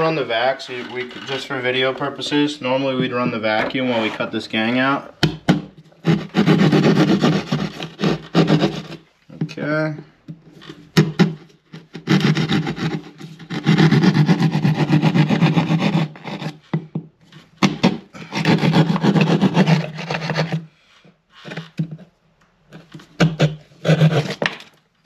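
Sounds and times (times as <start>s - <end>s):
saw cutting drywall: 5.5s - 9.1s, 10.9s - 16.8s, 17.5s - 20.8s, 22.8s - 24.8s.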